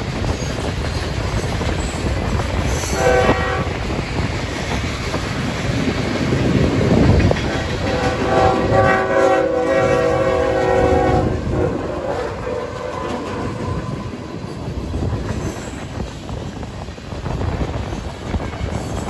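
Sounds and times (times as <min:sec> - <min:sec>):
freight cars rumbling and clacking: 0:00.0 - 0:09.0, 0:10.0 - 0:19.0
wind buffeting microphone: 0:00.0 - 0:19.0
locomotive air horn blast: 0:02.9 - 0:03.8, 0:07.8 - 0:14.1.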